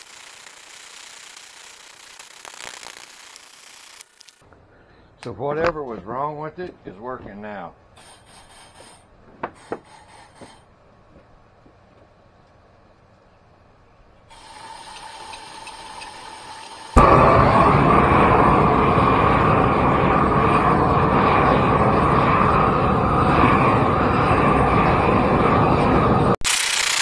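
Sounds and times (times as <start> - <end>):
gas hissing from torch nozzle: 0.0 - 4.4, 14.3 - 20.1, 26.4 - 27.0
roar of torch flame: 16.3 - 26.4.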